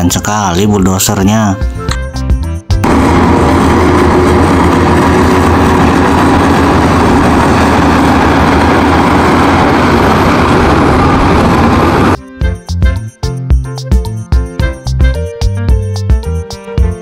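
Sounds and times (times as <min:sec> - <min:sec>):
bulldozer diesel engine running: 0:02.8 - 0:12.2.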